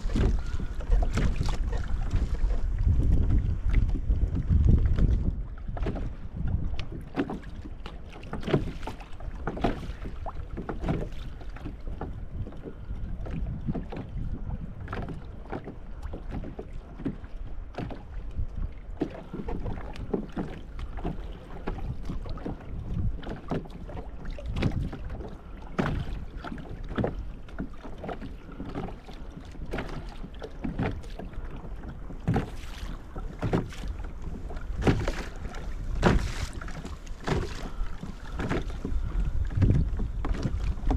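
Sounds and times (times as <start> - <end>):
water slapping against kayak hull: 0.0 - 40.9
wind rumbling on microphone: 0.0 - 40.9.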